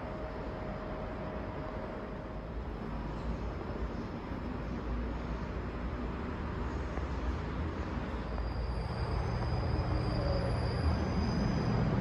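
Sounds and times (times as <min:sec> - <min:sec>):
electric train rumbling: 0:00.0 - 0:12.0
faint high whine: 0:07.8 - 0:12.0.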